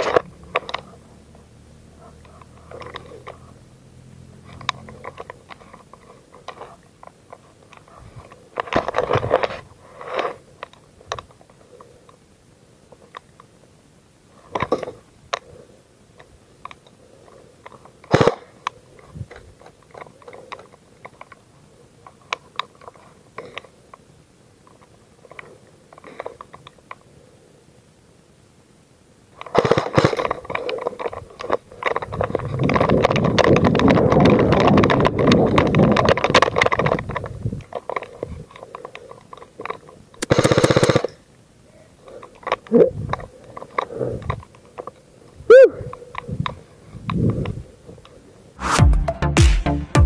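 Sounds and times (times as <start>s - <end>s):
crunching and clicking of gear: 0.0s - 12.2s, 14.3s - 27.1s, 29.3s - 48.5s
sharp cracks: 18.0s - 18.8s, 29.4s - 41.2s.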